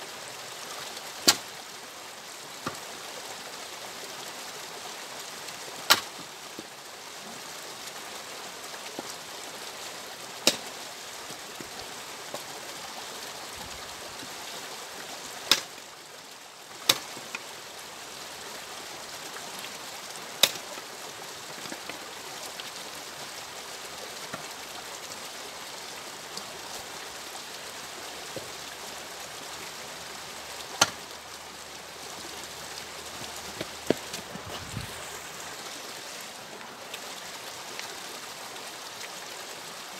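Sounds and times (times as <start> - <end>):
axe splitting firewood: 10.4 - 10.7, 15.5 - 15.7
steady rushing hiss: 25.7 - 39.8.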